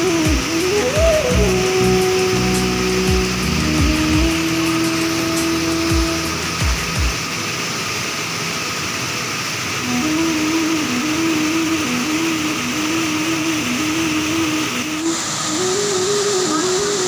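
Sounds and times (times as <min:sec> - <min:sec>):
simple repeating melody: 0:00.0 - 0:07.3
waterfall rushing over rocks: 0:00.0 - 0:17.0.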